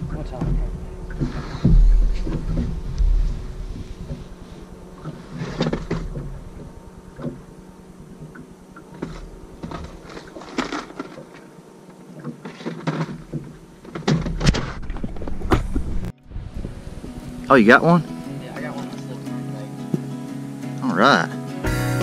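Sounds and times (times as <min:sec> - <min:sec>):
faint low hum: 0:00.0 - 0:12.2.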